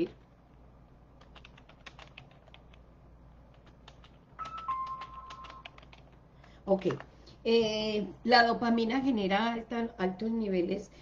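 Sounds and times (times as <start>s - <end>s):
keyboard key clicks: 3.5s - 6.2s
steady high tone: 4.4s - 5.7s.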